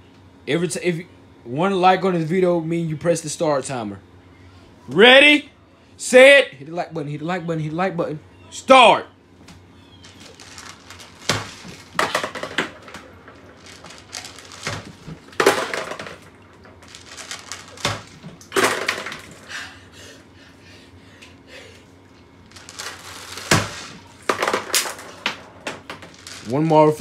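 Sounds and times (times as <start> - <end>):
marbles clinking into bowl: 10.2 - 19.3, 22.5 - 26.6.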